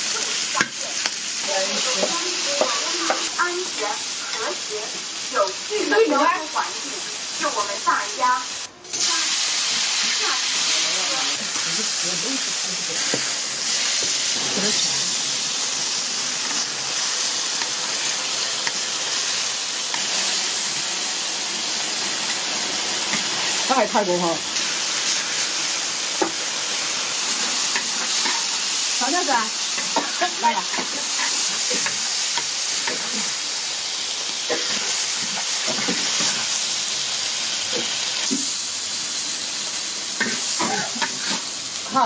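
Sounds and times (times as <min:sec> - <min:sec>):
meat sizzling in a wok: 0:00.0 - 0:42.0
metal spatula scraping: 0:27.5 - 0:28.6.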